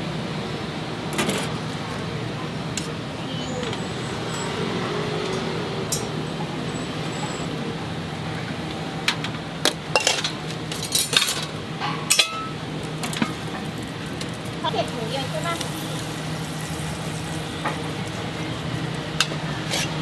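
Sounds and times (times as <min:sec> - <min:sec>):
steady background hum: 0:00.0 - 0:20.0
metal utensils clinking: 0:09.9 - 0:13.7.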